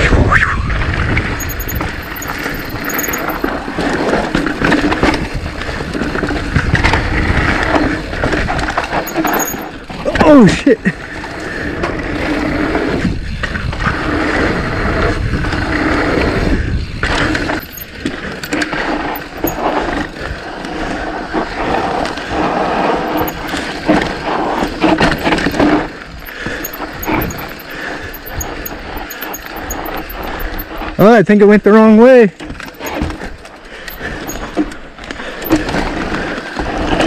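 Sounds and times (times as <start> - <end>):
bike rattling over bumps: 1.0 - 31.1, 32.4 - 37.0
bike tyres rolling over dirt: 3.5 - 27.0, 32.4 - 37.0.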